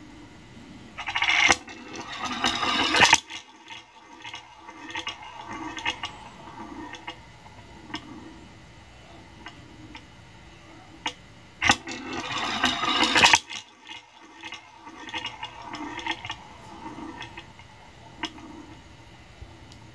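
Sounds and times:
steel ball rolling on wooden track: 1.0s - 8.4s, 11.1s - 18.9s.

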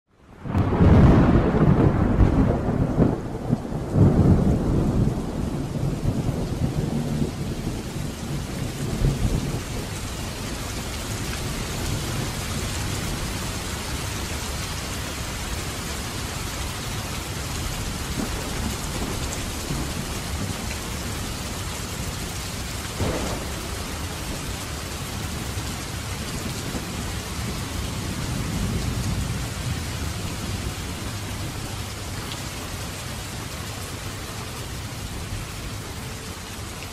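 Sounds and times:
heavy rain: 0.1s - 36.9s
rolling thunder: 0.4s - 14.6s, 17.4s - 32.0s.

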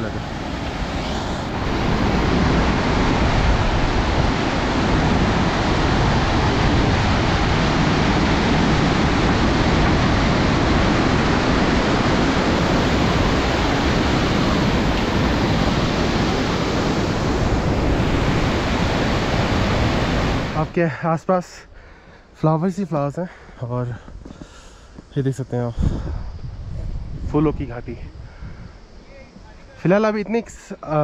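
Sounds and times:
stream rushing: 0.0s - 21.2s.

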